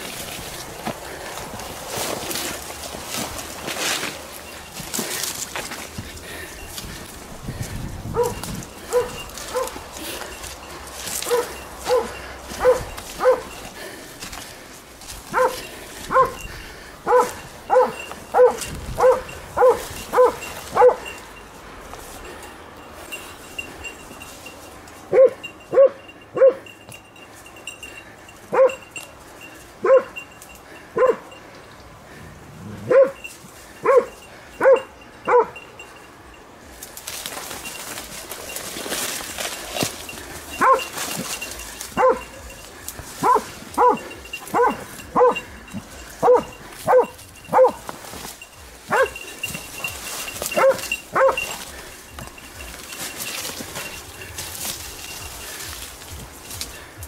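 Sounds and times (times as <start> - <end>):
undergrowth rustling: 0.0 - 57.0
dog barking: 8.1 - 9.8, 11.2 - 13.5, 15.3 - 16.4, 17.0 - 21.1, 25.1 - 26.6, 28.5 - 28.8, 29.8 - 30.2, 31.0 - 31.3, 32.8 - 33.2, 33.8 - 35.6, 40.6 - 40.9, 42.0 - 42.4, 43.2 - 45.5, 46.2 - 47.8, 48.9 - 49.2, 50.6 - 51.5.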